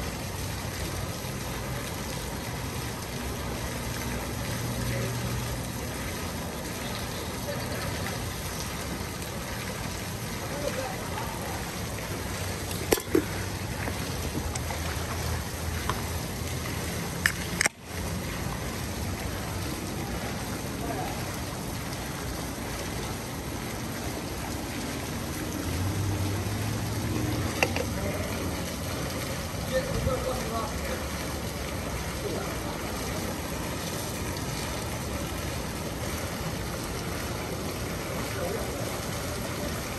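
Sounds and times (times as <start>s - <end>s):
fountain jets splashing: 0.0s - 39.9s.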